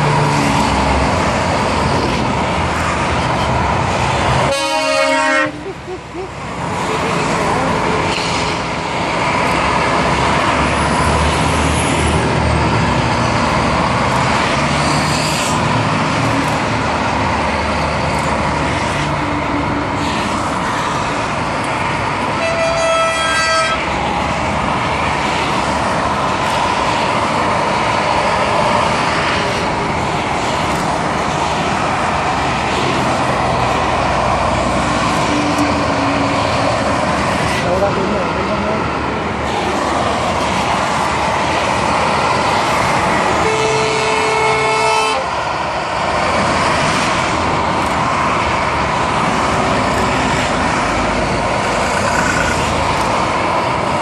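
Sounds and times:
motorway truck traffic: 0.0s - 54.0s
truck horn blast: 4.4s - 5.6s, 22.4s - 23.9s, 43.4s - 45.3s.

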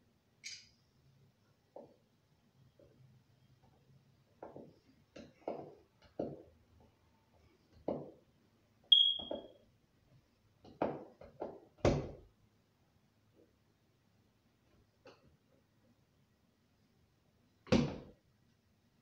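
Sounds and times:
sharp metallic ping: 8.9s - 9.4s.

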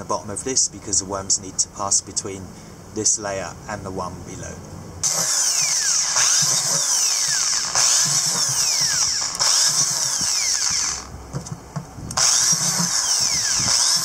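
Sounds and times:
electric drill boring plastic: 5.0s - 11.2s, 12.2s - 14.0s.

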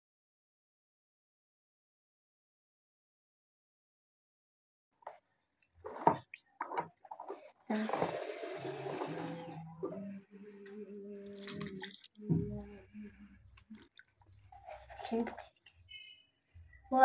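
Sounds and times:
water sloshing in plastic tub: 11.2s - 12.9s.

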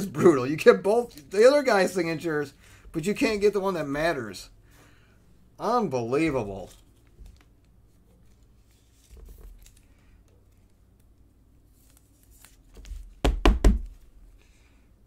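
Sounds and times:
faint rustling of card sleeve: 6.1s - 13.2s.

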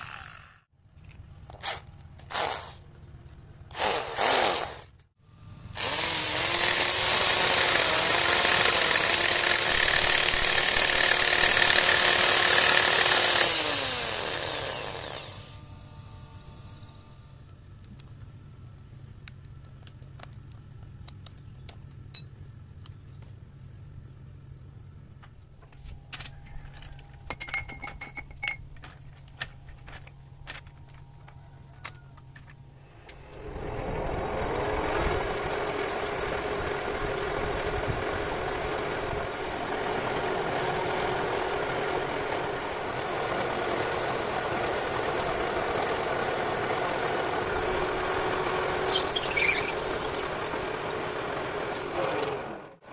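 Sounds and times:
metal lathe drilling steel: 5.8s - 15.5s, 39.3s - 50.5s
low hum: 15.1s - 51.9s.

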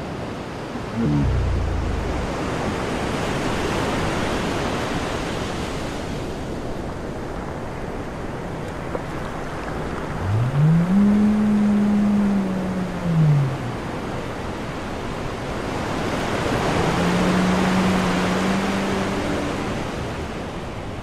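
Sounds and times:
wind on microphone: 0.9s - 4.5s, 9.8s - 21.0s
beach surf: 0.9s - 21.0s.

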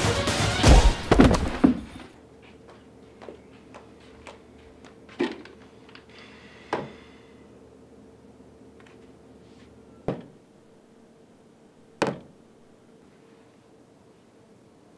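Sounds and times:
heavy punch thuds: 0.6s - 2.0s.

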